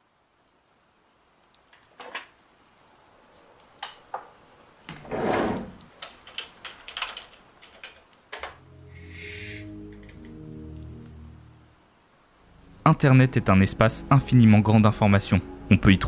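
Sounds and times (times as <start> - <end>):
keyboard typing: 6.0 - 8.5.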